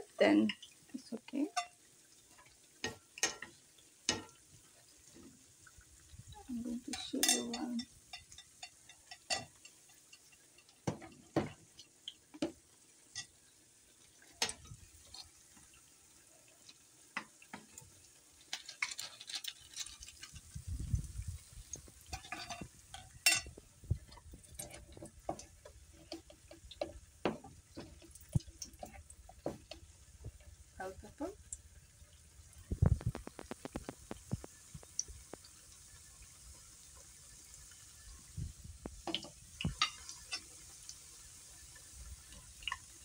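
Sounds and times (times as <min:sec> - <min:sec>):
faint sizzling in oil: 0:00.0 - 0:43.0
spoon stirring thick batter: 0:21.4 - 0:30.4.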